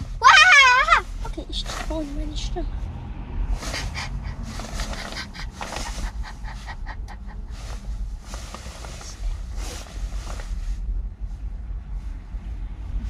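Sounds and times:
low vehicle cabin rumble: 0.0 - 13.0
breathy panting puffs: 3.6 - 9.1.

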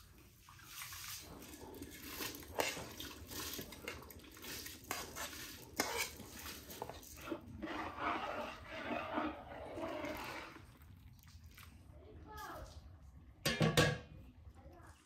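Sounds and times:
hand swishing water: 0.4 - 11.8
grain pouring into water: 8.5 - 11.9.

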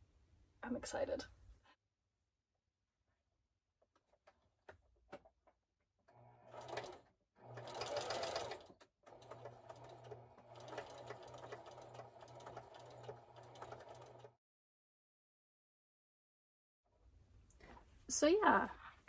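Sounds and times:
sewing machine clicks: 6.1 - 14.4
sewing machine running: 6.1 - 14.4.

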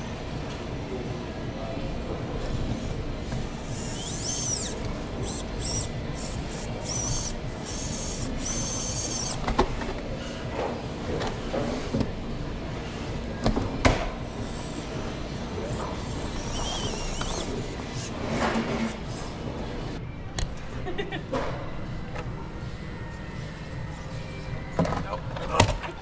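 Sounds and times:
rc truck electric motor whining: 2.7 - 9.8, 14.3 - 19.4.

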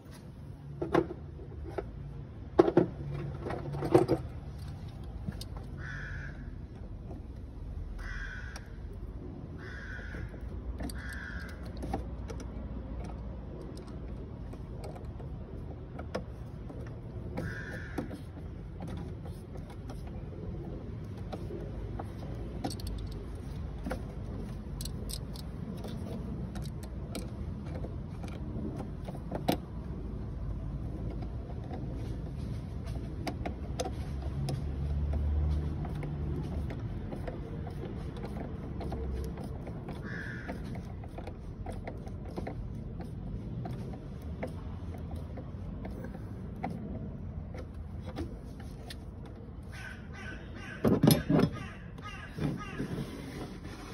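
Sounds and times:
small metallic clicks and scrapes: 0.0 - 53.9
screwdriver on metal fittings: 10.1 - 29.7, 32.9 - 46.9.

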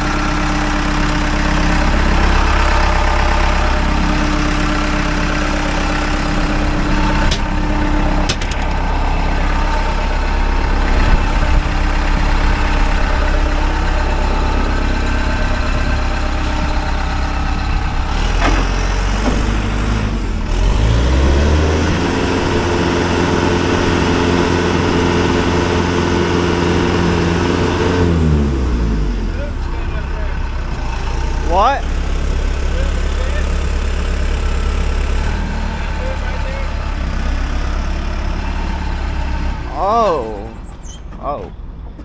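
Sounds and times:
diesel engine idling and revving: 0.0 - 42.0.

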